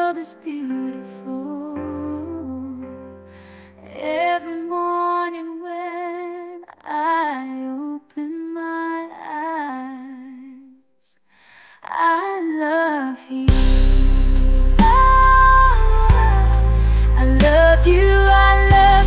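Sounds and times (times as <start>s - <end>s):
woman singing pop ballad: 0.0s - 10.8s, 11.6s - 19.0s
light backing music: 13.5s - 19.0s.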